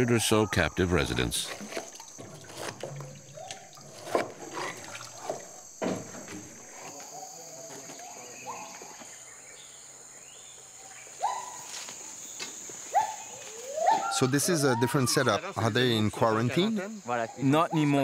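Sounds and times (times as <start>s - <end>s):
high insect drone: 0.0s - 18.0s
sharp knocks: 1.5s - 6.7s.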